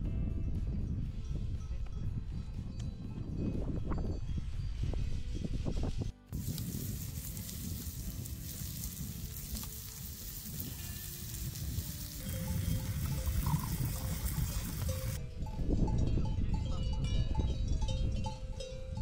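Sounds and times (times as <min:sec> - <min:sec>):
wind buffeting microphone: 0:00.0 - 0:19.0
meat sizzling on a grill: 0:06.3 - 0:15.2.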